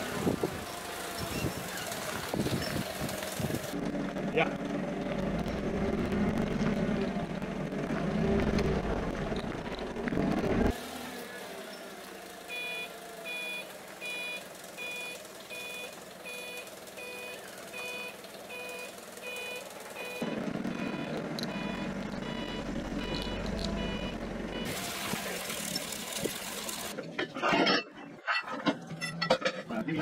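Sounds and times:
forklift engine rumble: 0.0s - 27.2s
reversing alarm beeping: 12.5s - 24.8s.

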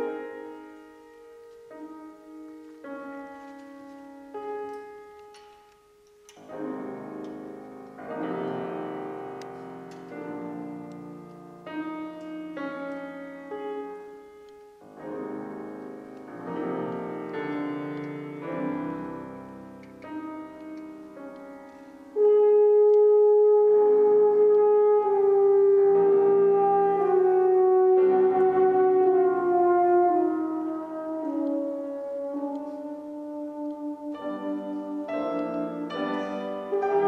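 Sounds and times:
piano playing chords and runs: 0.0s - 37.0s
euphonium long held note: 22.2s - 37.0s.

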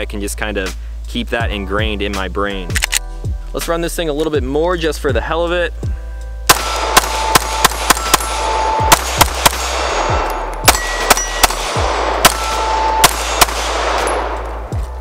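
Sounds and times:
pistol shots with echo: 6.5s - 14.8s.

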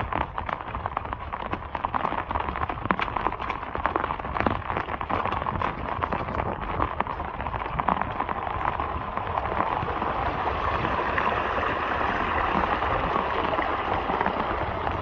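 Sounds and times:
raindrops ticking on microphone: 0.0s - 15.0s
runoff water flowing: 0.0s - 15.0s
heavy rain falling: 8.2s - 15.0s.

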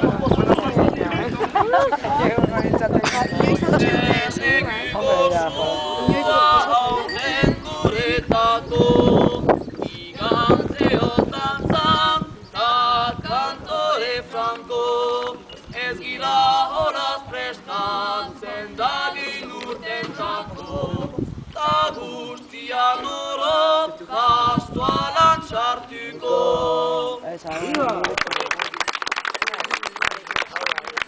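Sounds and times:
group singing a cappella: 3.4s - 27.3s.

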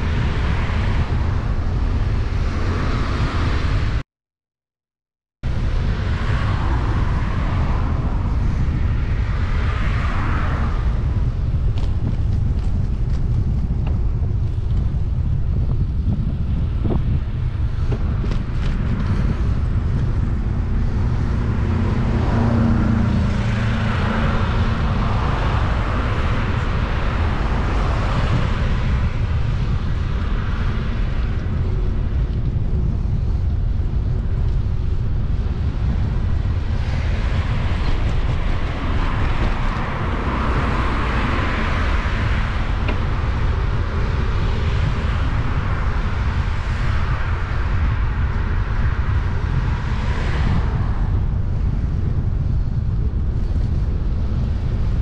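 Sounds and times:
wind rumble on microphone: 0.0s - 4.0s, 5.4s - 55.0s
road traffic passing: 5.5s - 55.0s.

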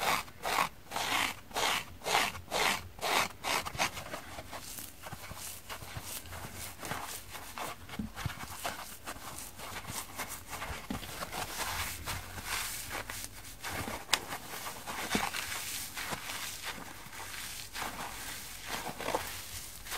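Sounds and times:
sponges crackling and rustling: 3.0s - 19.9s.

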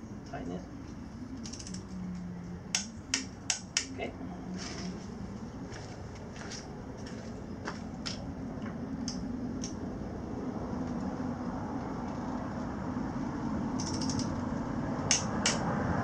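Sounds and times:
steady low rumble: 0.0s - 16.0s
ratchet wrench clicking: 1.4s - 1.8s, 13.8s - 14.4s.

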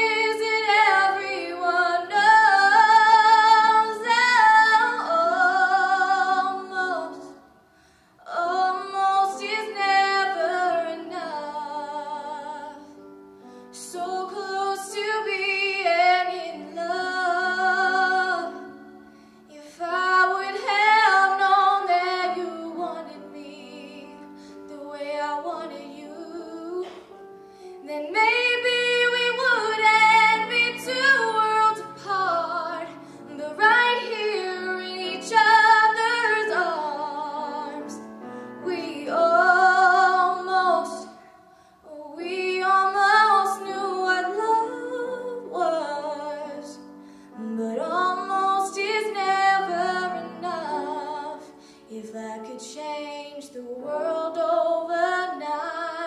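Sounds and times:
soft instrumental accompaniment: 0.0s - 56.0s
woman singing pop ballad: 27.8s - 38.0s.

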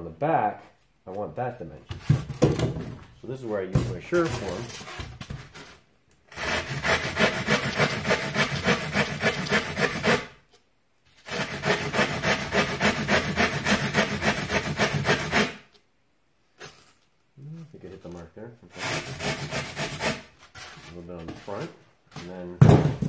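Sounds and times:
rasp shaving foam board: 6.3s - 10.3s, 11.2s - 15.7s, 18.7s - 20.8s.

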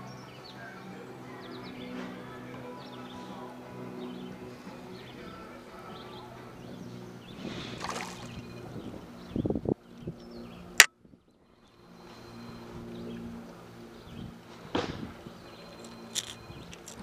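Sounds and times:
fish splashing: 7.7s - 8.5s.

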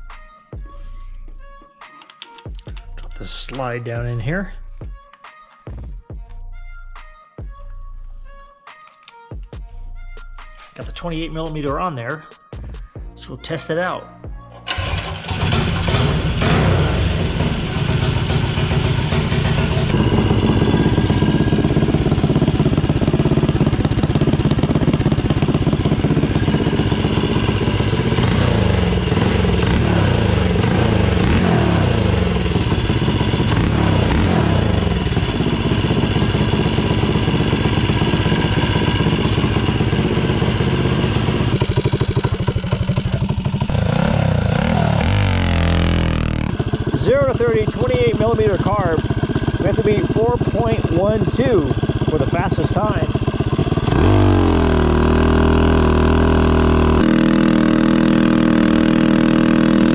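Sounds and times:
minibike engine revving: 14.6s - 59.9s.

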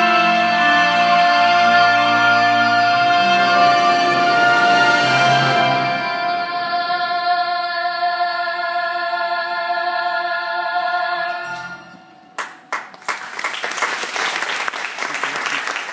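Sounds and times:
audience applauding: 12.4s - 15.9s.

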